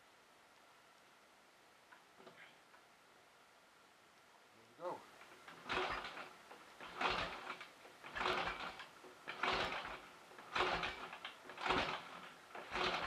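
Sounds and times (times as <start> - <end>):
motorcycle engine being turned over: 5.3 - 13.0.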